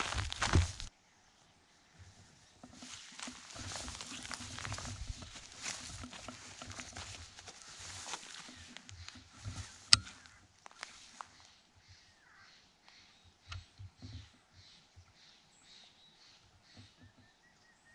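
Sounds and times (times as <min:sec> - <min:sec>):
footsteps crunching dry leaves: 0:00.0 - 0:00.9, 0:02.7 - 0:11.4.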